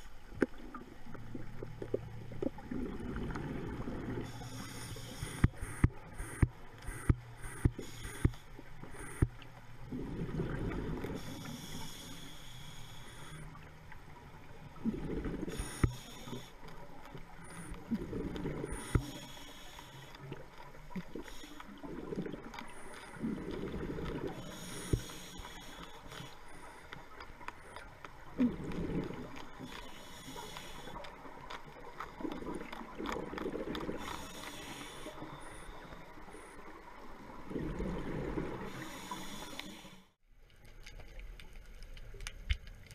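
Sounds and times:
scuba regulator breathing underwater: 3.4s - 9.3s, 9.9s - 13.6s, 14.8s - 16.8s, 17.4s - 20.4s, 21.1s - 27.0s, 28.4s - 31.1s, 33.6s - 36.8s, 37.4s - 40.2s.

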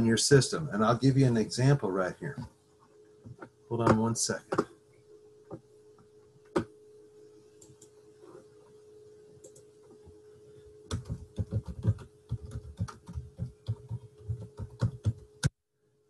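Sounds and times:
keyboard typing: 9.4s - 9.7s, 10.9s - 15.5s.

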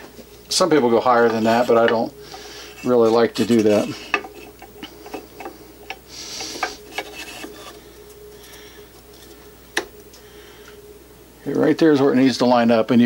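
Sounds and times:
metal scrape: 0.9s - 5.5s, 6.1s - 7.8s.

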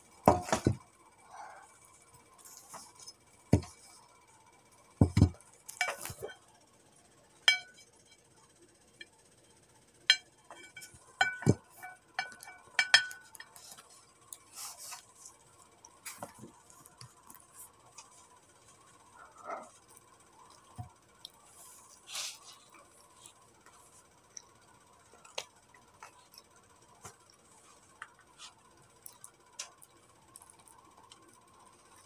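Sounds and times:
ceramic plate clinking: 7.5s - 7.9s, 10.1s - 13.6s.

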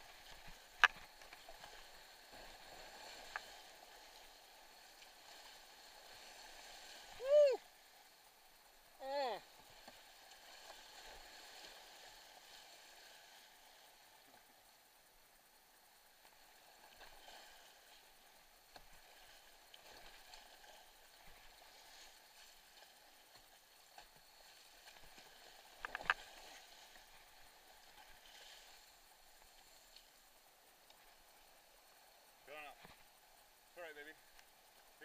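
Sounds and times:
kayak paddle splashes: 0.0s - 8.1s, 16.1s - 30.2s
rushing creek water: 0.0s - 35.0s.

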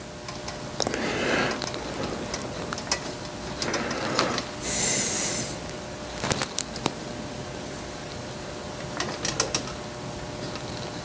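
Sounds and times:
cutting wheel scraping tube: 0.8s - 5.6s.

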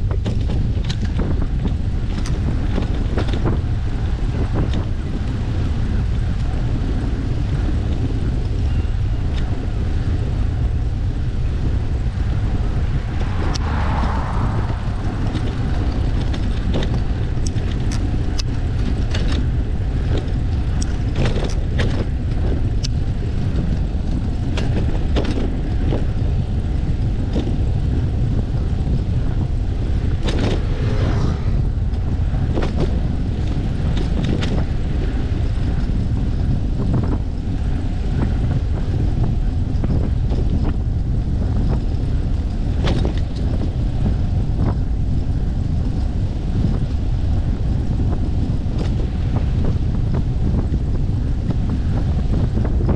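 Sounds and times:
sharp clicks and rattles: 0.0s - 3.6s, 14.6s - 26.2s, 28.8s - 30.8s
wind rumbling on microphone: 0.0s - 52.9s.

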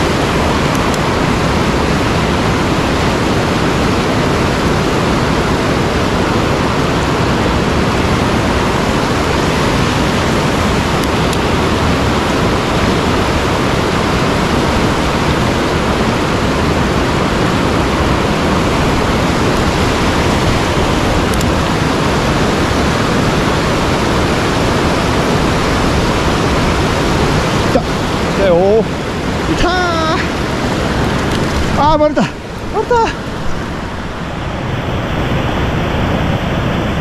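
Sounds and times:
stream water rushing: 0.0s - 37.0s.

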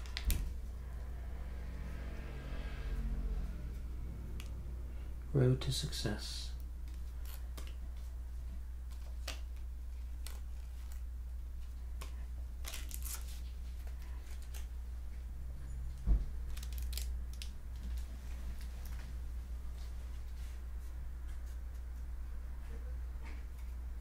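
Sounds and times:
low hum: 0.0s - 12.5s.

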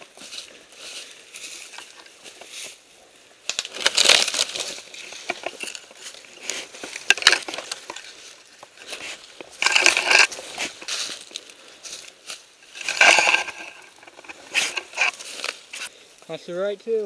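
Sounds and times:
footsteps crunching dry leaves: 0.0s - 15.9s
gear rubbing on microphone: 12.8s - 15.9s.

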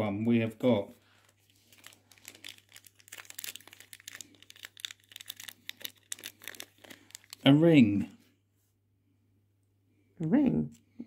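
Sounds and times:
packaging crinkling: 1.1s - 7.6s.

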